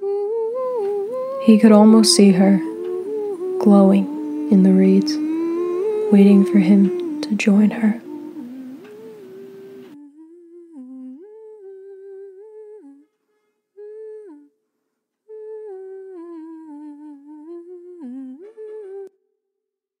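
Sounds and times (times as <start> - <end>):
person humming: 0.0 - 13.0, 15.3 - 19.1.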